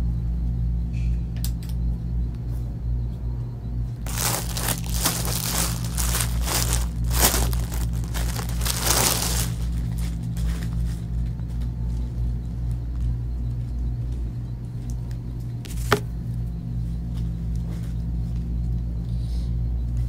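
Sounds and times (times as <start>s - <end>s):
steady low hum: 1.8s - 20.0s
plastic bags crinkling: 4.1s - 10.8s.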